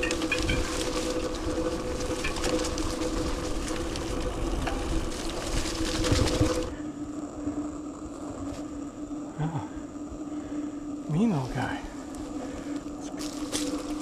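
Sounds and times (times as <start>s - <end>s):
tyre and wind noise: 0.0s - 6.8s
bike rattling: 0.0s - 7.0s, 12.3s - 14.0s
steady hum: 0.0s - 14.0s.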